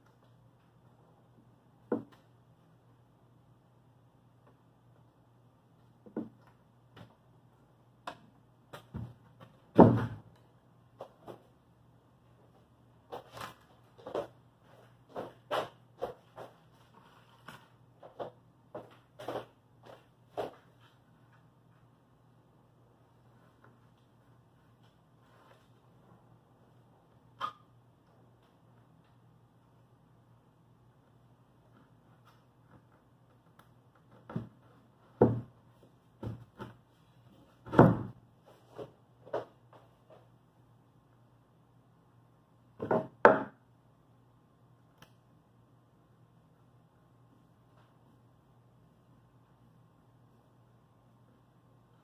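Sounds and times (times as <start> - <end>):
faint low hum: 0.0 - 52.0
wooden panel knocks and thumps: 8.9 - 10.3, 35.2 - 35.5, 37.7 - 38.2.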